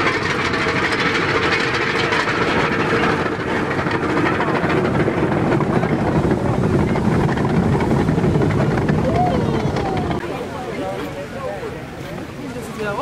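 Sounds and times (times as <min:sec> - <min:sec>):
carriage rumbling: 0:00.0 - 0:10.2
surf rushing: 0:00.0 - 0:12.4
wind: 0:00.0 - 0:13.0.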